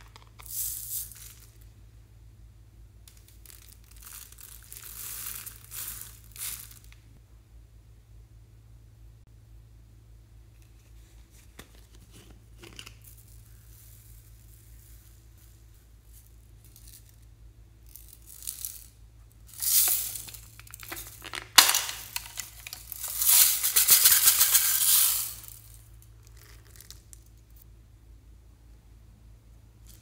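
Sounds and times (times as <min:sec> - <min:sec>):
foam beads rattling into dish: 0:00.0 - 0:01.7, 0:03.1 - 0:07.0, 0:12.8 - 0:27.3.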